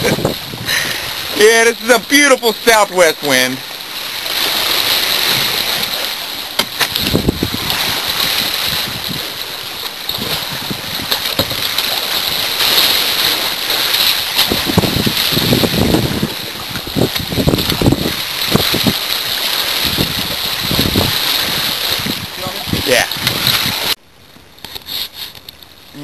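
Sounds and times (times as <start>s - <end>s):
sea waves splashing: 0.0s - 24.0s.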